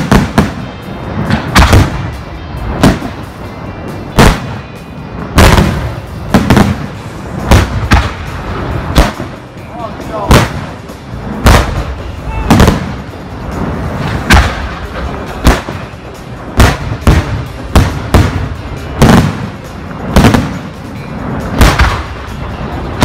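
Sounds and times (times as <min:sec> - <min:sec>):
fireworks bursting with loud bangs: 0:00.0 - 0:23.0
steady low rumble: 0:00.0 - 0:23.0.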